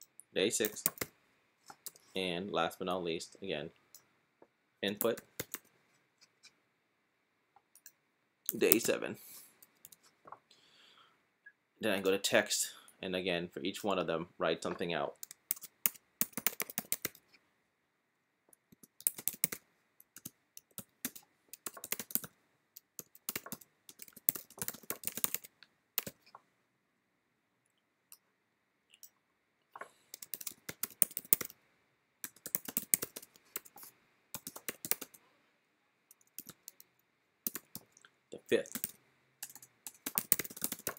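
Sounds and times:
computer keyboard typing: 0.6 - 1.1, 4.9 - 5.7, 15.2 - 17.2, 18.8 - 26.2, 30.1 - 31.6, 32.2 - 35.2, 36.1 - 36.9, 37.5 - 37.9, 38.6 - 40.9.

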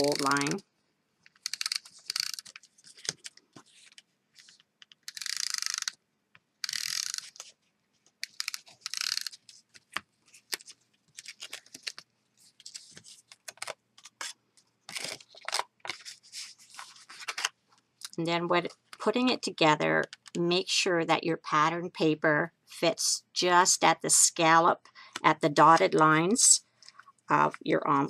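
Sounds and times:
paper rustling: 1.3 - 4.7, 7.2 - 17.6
tape runner zipping: 1.4 - 3.2, 5.0 - 6.0, 6.6 - 7.4, 8.2 - 9.4.

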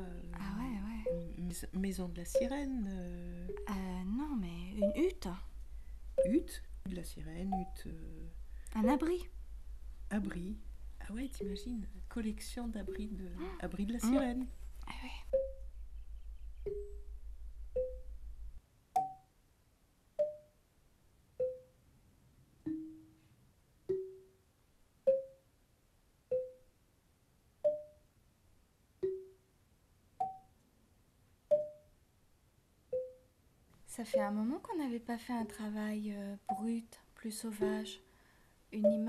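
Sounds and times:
sparse struck notes music: 0.0 - 9.6, 10.3 - 14.6
low hum: 0.0 - 18.6.

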